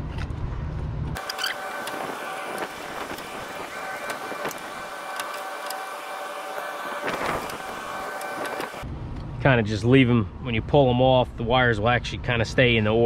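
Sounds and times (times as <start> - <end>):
steady machine whine: 1.2 - 9.0.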